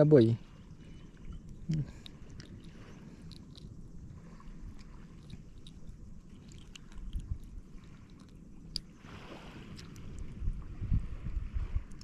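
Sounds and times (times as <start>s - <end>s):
fingers handling fish squishy: 1.4s - 3.9s, 4.6s - 9.0s.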